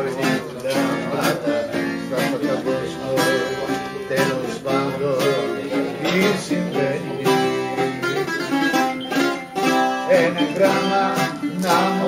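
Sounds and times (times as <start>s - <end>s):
dance music with plucked strings: 7.4s - 12.0s.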